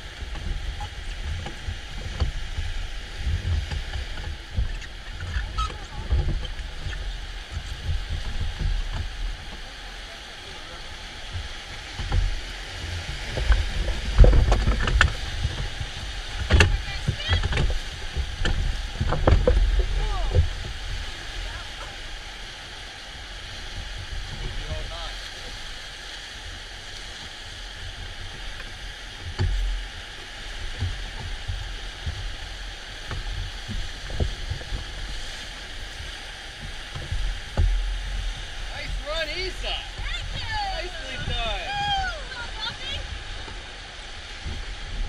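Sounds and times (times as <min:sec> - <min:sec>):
water slapping against raft: 0:00.0 - 0:45.0
whitewater rushing: 0:00.0 - 0:45.0
low thumps: 0:30.6 - 0:43.7.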